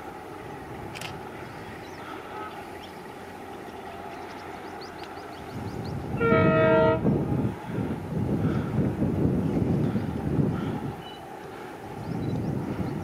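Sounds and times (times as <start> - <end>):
diesel locomotive engine rumble: 0.0 - 13.0
train horn blast: 6.1 - 7.3.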